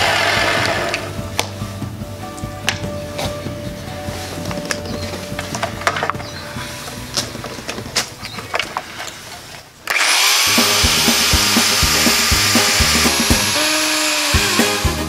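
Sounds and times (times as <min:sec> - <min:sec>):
circular saw cutting wood: 0:00.0 - 0:01.1, 0:09.9 - 0:15.0
background music with steady beat: 0:00.0 - 0:08.2, 0:10.4 - 0:15.0.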